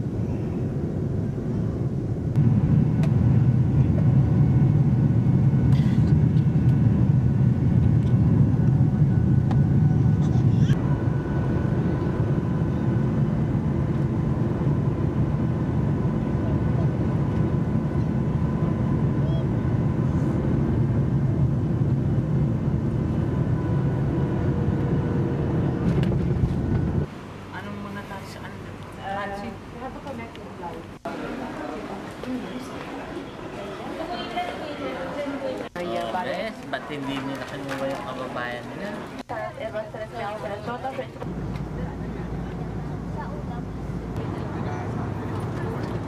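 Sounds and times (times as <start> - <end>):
jet engines rumbling in cabin: 0.0 - 27.5, 39.0 - 46.0.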